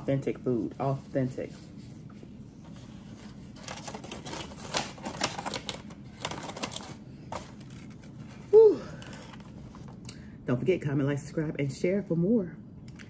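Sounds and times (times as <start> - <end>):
foil and foam container crackling: 3.4 - 8.2.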